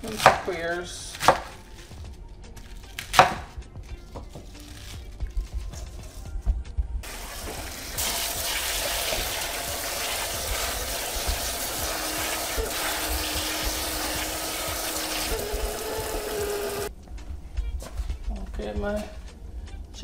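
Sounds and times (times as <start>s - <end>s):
water spraying into colander: 7.0s - 16.9s.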